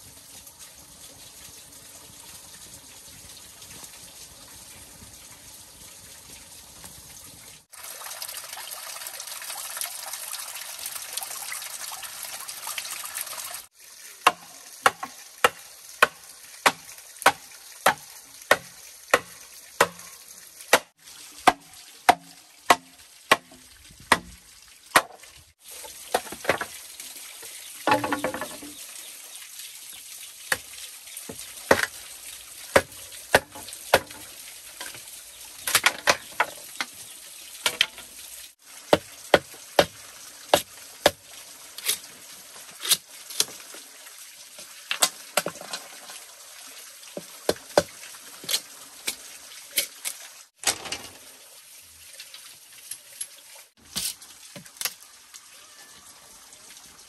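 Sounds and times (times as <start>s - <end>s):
bamboo knocking and clattering: 14.2s - 20.1s, 20.7s - 25.2s, 25.8s - 26.8s, 27.8s - 28.8s, 32.7s - 35.0s, 35.6s - 37.0s, 37.6s - 38.1s, 44.9s - 46.2s, 50.6s - 51.2s
machete chopping bamboo: 14.2s - 20.1s, 20.7s - 24.4s, 32.8s - 34.2s.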